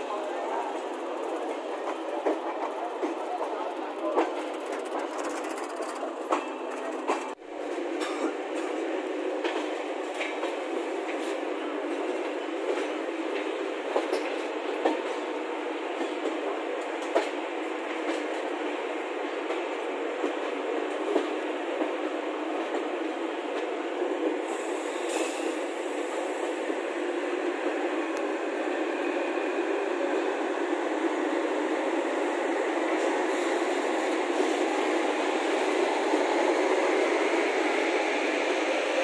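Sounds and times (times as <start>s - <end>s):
train rumbling on track: 0.0s - 39.0s
wheels clicking over rail joints: 0.7s - 7.4s.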